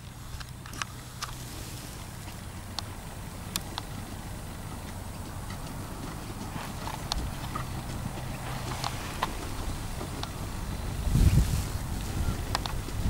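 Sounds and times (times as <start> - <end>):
horse hoofbeats trotting on dirt: 0.0 - 13.0
low background rumble: 0.0 - 13.0.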